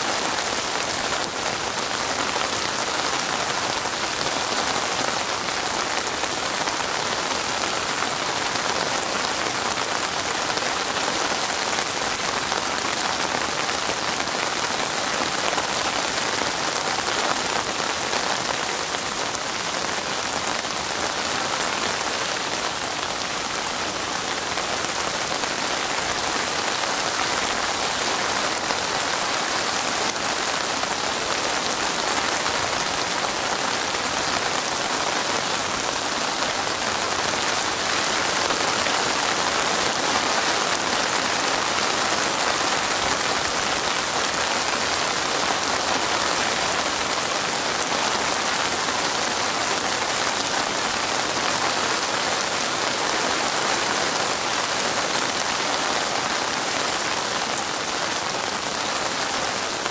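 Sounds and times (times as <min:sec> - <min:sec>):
rain on a wet surface: 0:00.0 - 0:59.9.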